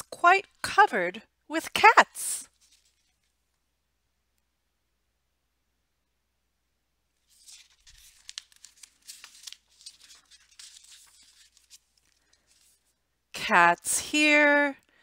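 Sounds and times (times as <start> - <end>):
book pages turning: 2.5 - 3.4, 7.2 - 13.0.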